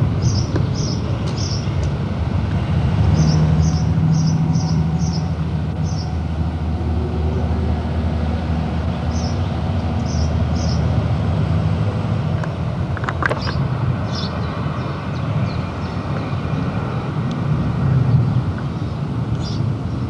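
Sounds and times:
small birds chirping: 0:00.2 - 0:01.8, 0:03.1 - 0:06.2, 0:08.9 - 0:10.9, 0:13.2 - 0:16.4, 0:18.1 - 0:20.0
clatter of clicks: 0:12.4 - 0:13.6.

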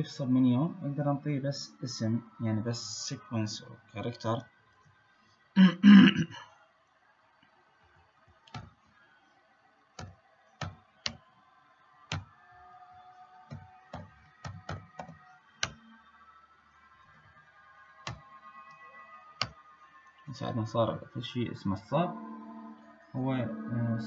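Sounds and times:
keyboard keystrokes: 0:13.5 - 0:15.8
person speaking: 0:20.4 - 0:24.0.

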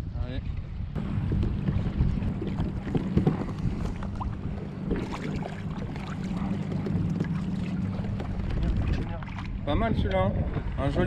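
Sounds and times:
wind buffeting microphone: 0:00.0 - 0:11.0
water lapping against kayak hulls: 0:00.4 - 0:11.0
small splashes: 0:01.7 - 0:09.6.

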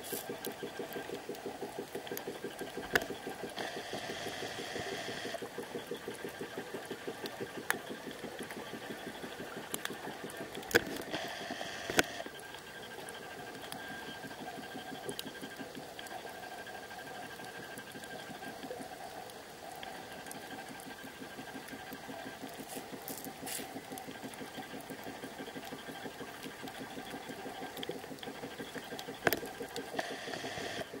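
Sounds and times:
sharp clicks: 0:00.3 - 0:12.3.

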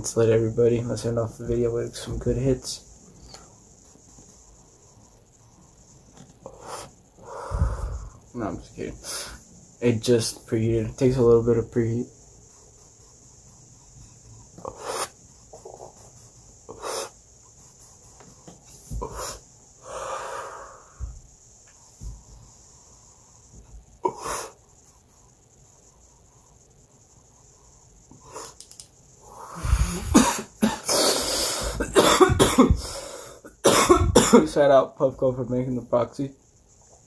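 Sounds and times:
soft breaths: 0:00.9 - 0:09.8, 0:12.2 - 0:30.2
faint clicks: 0:28.4 - 0:29.0
person coughing: 0:29.8 - 0:31.0, 0:31.6 - 0:32.9, 0:33.6 - 0:34.5.

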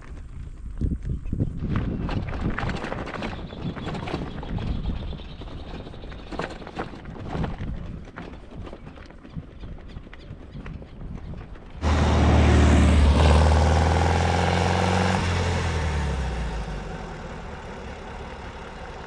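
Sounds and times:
car engine driving past: 0:11.8 - 0:19.0.

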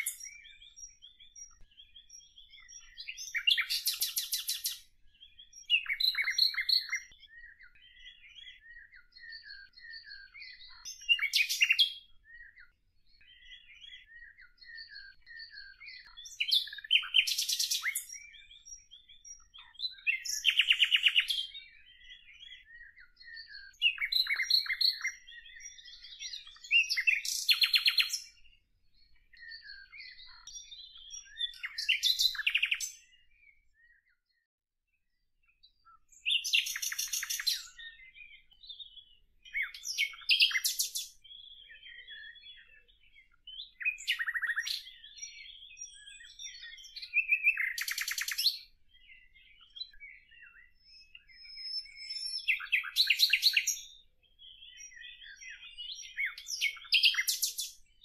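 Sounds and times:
songbird trilling: 0:00.0 - 0:12.6, 0:13.2 - 0:28.4, 0:29.3 - 0:33.1, 0:36.2 - 0:57.8
bird chirps and whistles: 0:00.0 - 0:12.7, 0:13.3 - 0:28.4, 0:29.3 - 0:34.0, 0:36.1 - 0:57.9.

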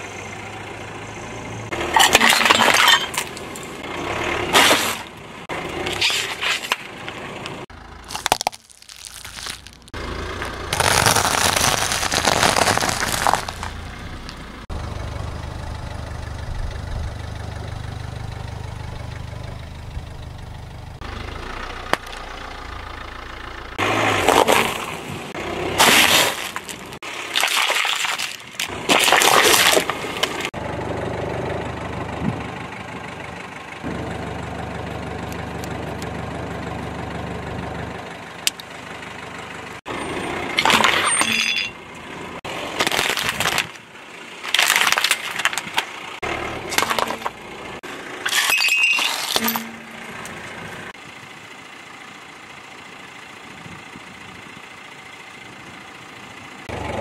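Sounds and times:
car engine hum: 0:00.0 - 0:27.4, 0:28.3 - 0:57.0
tyre crushing crunchy snacks: 0:08.0 - 0:13.8, 0:25.8 - 0:30.5, 0:42.6 - 0:43.8, 0:44.4 - 0:45.9.

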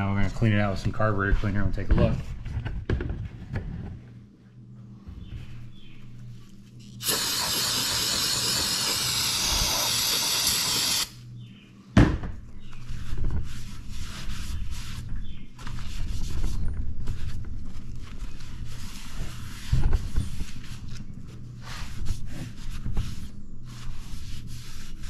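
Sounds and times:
aerosol spray hissing: 0:07.0 - 0:11.2
short uneven noise bursts: 0:07.0 - 0:11.2.

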